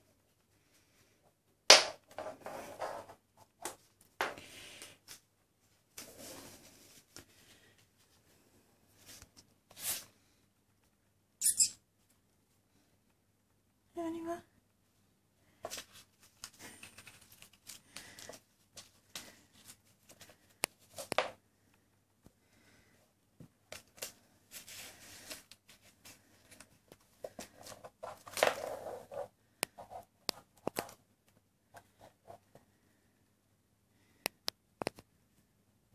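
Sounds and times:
kitten playing with toy on floor: 1.8s - 5.2s, 15.6s - 21.4s, 23.6s - 31.0s.

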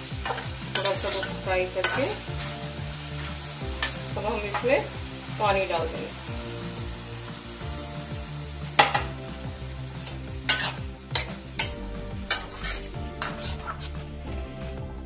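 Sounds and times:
vegetables sizzling: 0.0s - 15.0s
spatula scraping metal pan: 0.2s - 2.5s, 10.4s - 14.2s.

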